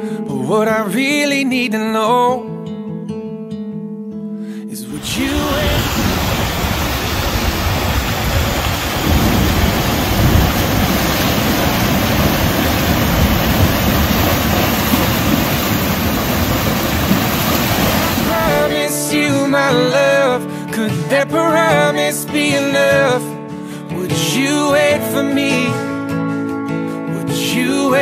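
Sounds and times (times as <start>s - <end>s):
wind noise on microphone: 4.9s - 18.6s
creek water rushing: 4.9s - 18.9s
horse wading through water: 5.0s - 18.5s.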